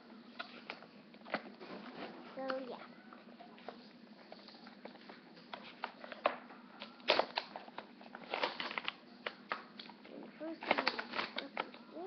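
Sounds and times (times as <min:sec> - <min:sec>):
plastic packaging crinkling: 0:04.4 - 0:11.8.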